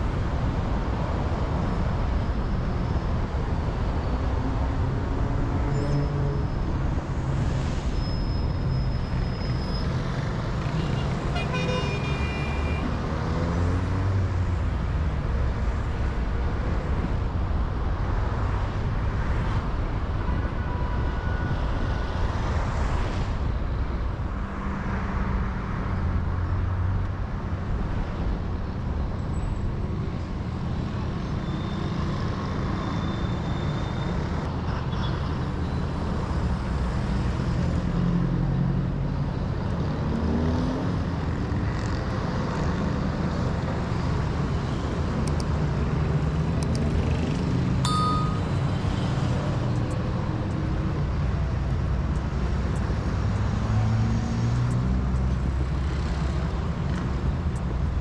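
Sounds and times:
vehicles passing: 0.0 - 20.5, 35.3 - 58.0
engine and tyre rumble: 0.0 - 58.0.

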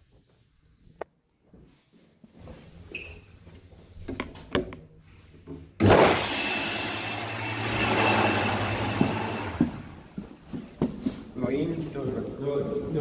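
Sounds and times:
hand dryer running: 5.8 - 11.2
light footsteps: 8.6 - 13.0.

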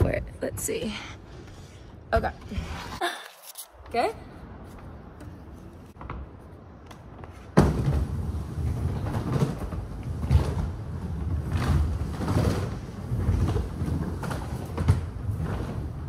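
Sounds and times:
skateboard wheels rolling on wood: 4.6 - 16.0
skateboard thud: 7.4 - 8.3.

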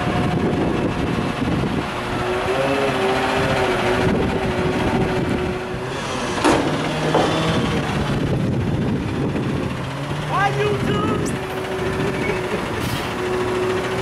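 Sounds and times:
garbage truck engine running: 0.0 - 14.0
hydraulics working: 0.0 - 14.0.

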